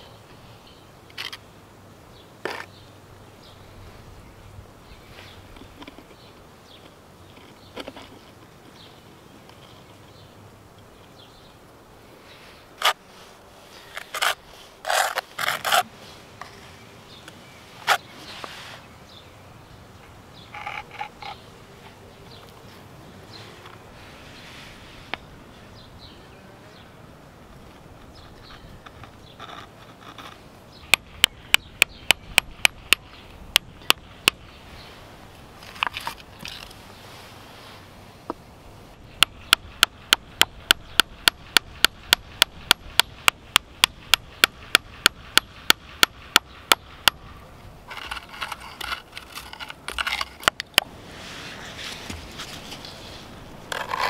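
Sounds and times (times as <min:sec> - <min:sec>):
hammer tapping on stone: 0:39.2 - 0:47.2.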